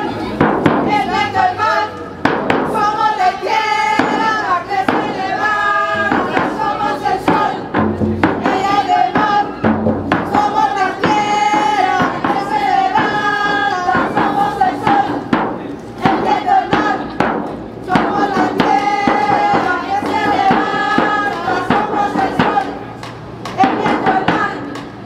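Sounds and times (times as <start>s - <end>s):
frame drum beat: 4.0s - 22.8s.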